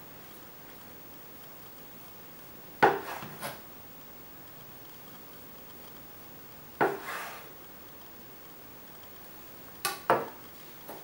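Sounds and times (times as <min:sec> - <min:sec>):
knife scrape: 0:02.8 - 0:03.6, 0:06.8 - 0:07.6.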